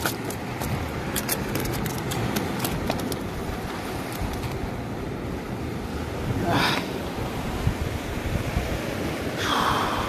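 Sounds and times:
fish slapping on rock: 0.0 - 3.3.

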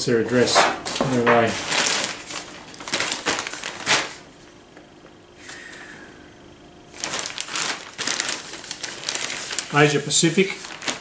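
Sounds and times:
plastic satchel crinkling: 1.6 - 4.2, 6.9 - 11.0.

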